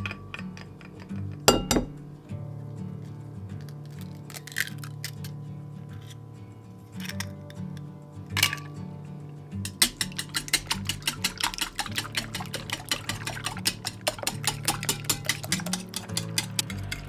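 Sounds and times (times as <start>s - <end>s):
whisk clicking against bowl: 9.6s - 17.0s.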